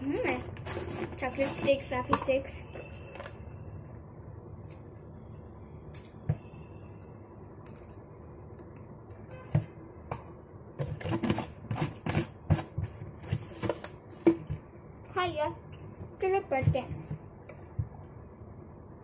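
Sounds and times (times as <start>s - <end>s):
hand rummaging in plastic jar: 0.0s - 2.4s.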